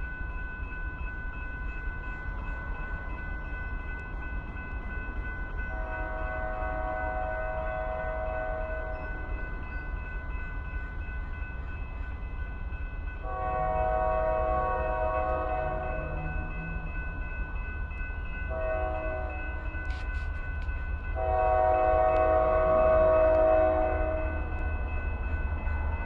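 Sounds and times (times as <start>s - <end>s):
train horn blasts: 5.7s - 9.2s, 13.2s - 16.2s, 18.5s - 20.3s, 21.2s - 24.4s.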